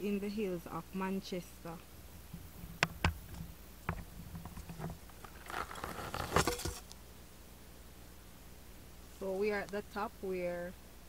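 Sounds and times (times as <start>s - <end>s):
dry grass rustling: 4.4s - 6.9s.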